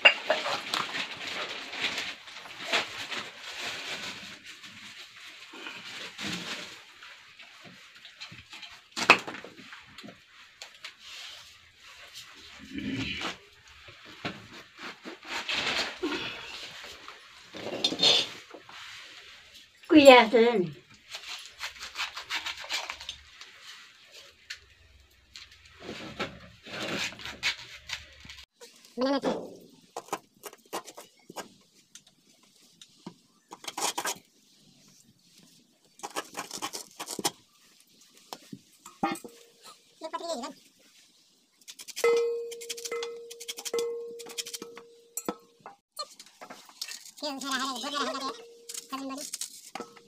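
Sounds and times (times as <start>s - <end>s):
blade scraping and cutting: 21.1s - 23.3s.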